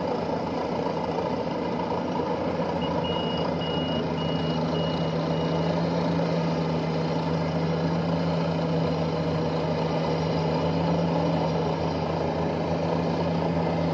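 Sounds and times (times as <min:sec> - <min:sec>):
combine harvester engine drone: 0:00.0 - 0:13.9.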